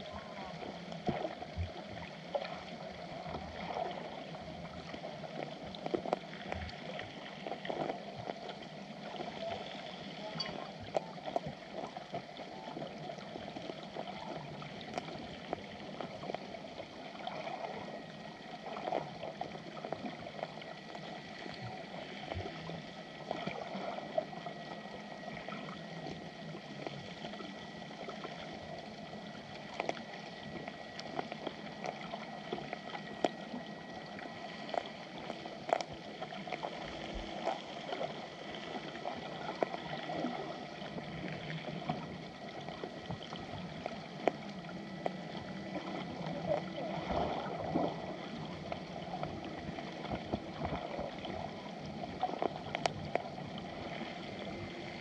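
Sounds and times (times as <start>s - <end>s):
faint high whine: 0.0s - 55.0s
muffled underwater water noise: 0.0s - 55.0s
underwater clicks and cracks: 4.9s - 8.6s, 10.2s - 16.6s, 29.6s - 38.8s, 40.9s - 46.7s, 48.6s - 54.0s.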